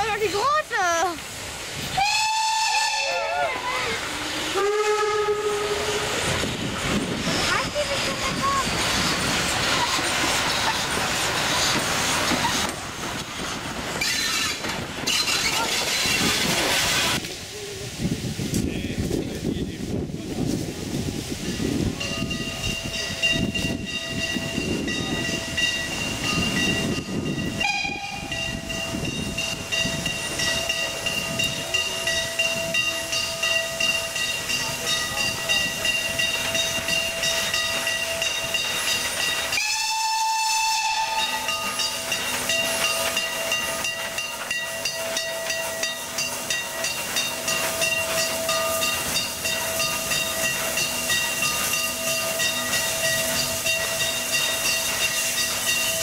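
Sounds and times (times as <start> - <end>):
steam locomotive running: 0.0 - 56.0
hiss of steam: 0.2 - 27.6, 28.2 - 56.0
steam whistle blowing: 1.9 - 3.6, 4.3 - 6.3, 27.6 - 28.4, 39.5 - 41.6.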